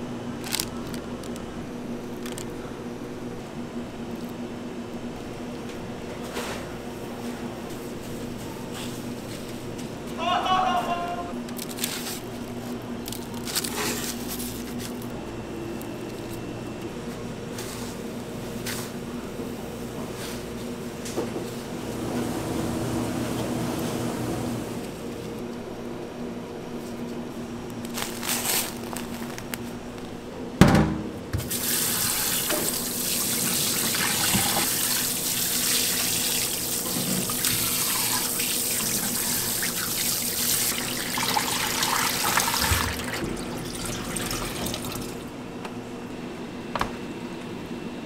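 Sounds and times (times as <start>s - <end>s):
steady low hum: 0.0s - 31.5s
tap water running into sink: 31.4s - 45.2s.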